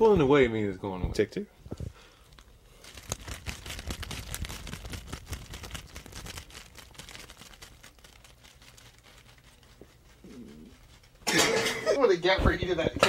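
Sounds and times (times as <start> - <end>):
lettuce leaves crackling and tearing: 2.3 - 11.2.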